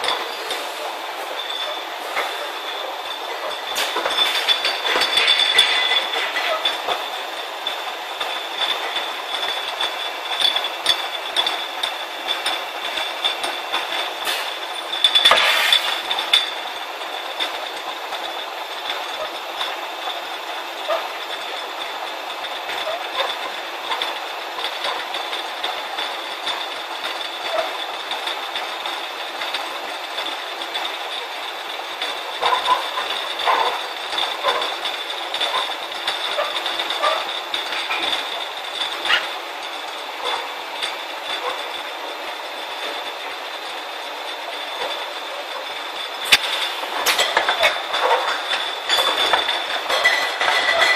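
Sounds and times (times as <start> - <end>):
glass bottles clinking: 0.0 - 17.6, 32.0 - 42.2, 44.4 - 50.9
bottle filler machine whine: 0.0 - 50.9.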